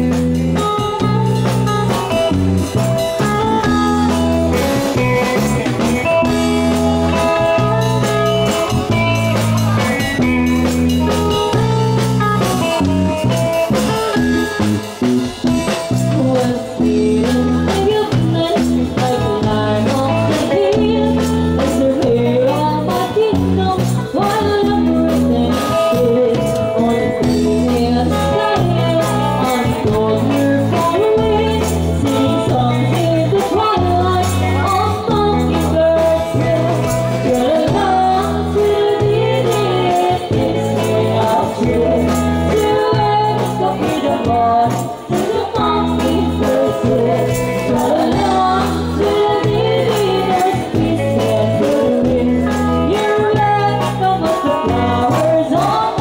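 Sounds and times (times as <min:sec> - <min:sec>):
drum kit: 0:00.0 - 0:56.0
electric bass: 0:00.0 - 0:56.0
women singing together: 0:27.5 - 0:56.0.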